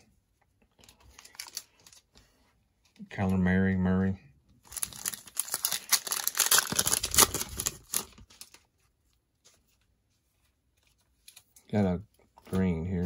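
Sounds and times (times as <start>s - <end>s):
cellophane wrapper tearing and crinkling: 0.8s - 2.0s, 4.6s - 8.7s.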